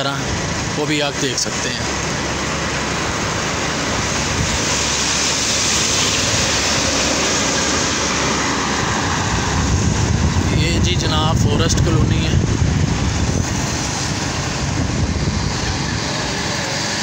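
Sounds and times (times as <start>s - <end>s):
truck passing: 0.0s - 17.0s
vehicle road and wind noise: 0.0s - 17.0s.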